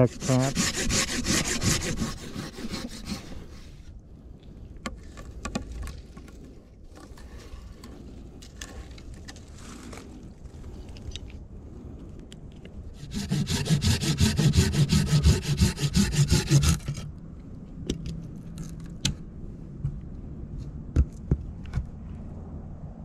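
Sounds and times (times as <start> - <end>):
saw cutting through wooden pole: 0.0 - 3.9, 13.0 - 17.1.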